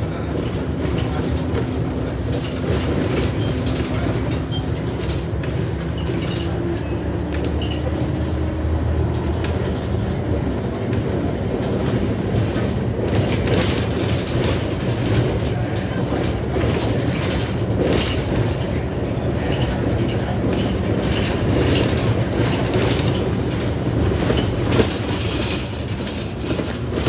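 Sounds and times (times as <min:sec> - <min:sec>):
bus engine drone: 0:00.0 - 0:27.0
road rumble: 0:00.0 - 0:27.0.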